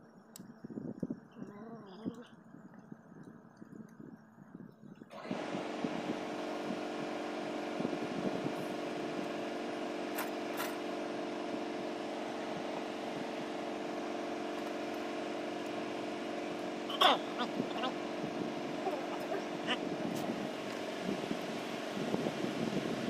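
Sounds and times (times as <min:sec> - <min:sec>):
motor humming: 0:04.9 - 0:23.0.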